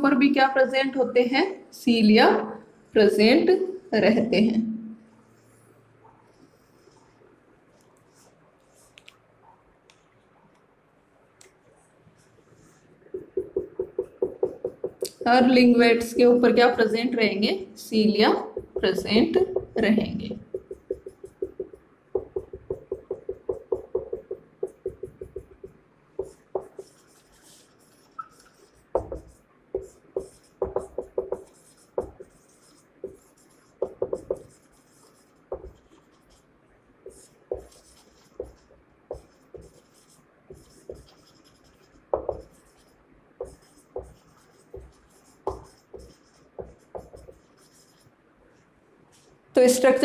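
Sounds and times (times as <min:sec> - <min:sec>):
marker squeaking on whiteboard: 0:13.2 - 0:15.3, 0:18.4 - 0:36.4, 0:37.1 - 0:48.1.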